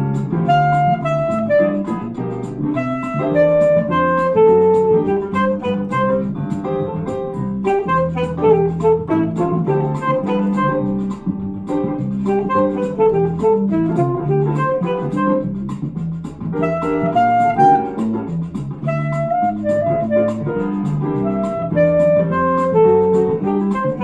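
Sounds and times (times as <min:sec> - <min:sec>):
alto saxophone melody: 0:00.0 - 0:02.2, 0:02.8 - 0:06.6, 0:07.6 - 0:11.2, 0:12.3 - 0:15.6, 0:16.6 - 0:18.2, 0:18.8 - 0:24.0
bass and chord accompaniment: 0:00.0 - 0:24.0.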